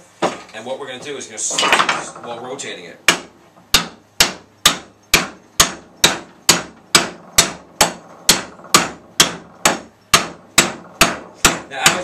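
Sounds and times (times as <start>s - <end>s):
hammer blows ringing on metal shaft: 3.1s - 12.0s.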